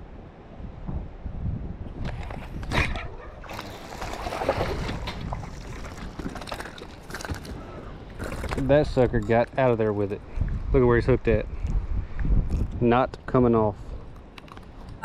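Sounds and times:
water sloshing against boat: 2.3 - 9.1.

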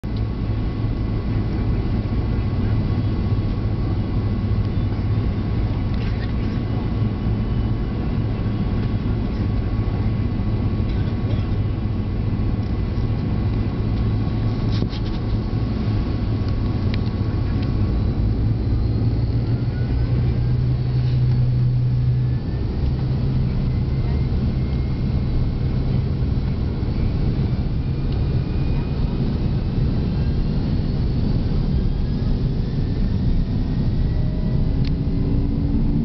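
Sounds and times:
jet engines low drone: 0.0 - 36.0
faint rising whines: 11.6 - 36.0.

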